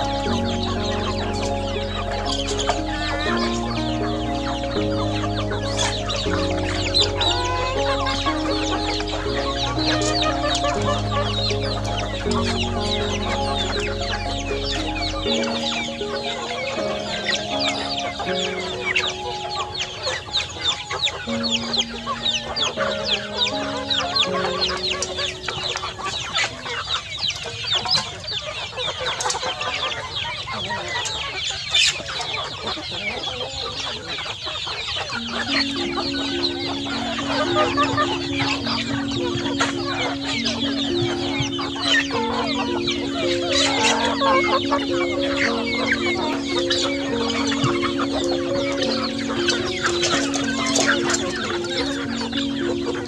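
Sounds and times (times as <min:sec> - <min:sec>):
background music simple melody: 0:00.0 - 0:53.0
chickens clucking and cheeping: 0:00.0 - 0:53.0.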